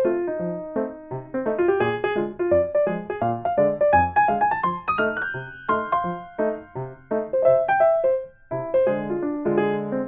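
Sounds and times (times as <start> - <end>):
piano notes and chords: 0.0 - 10.0.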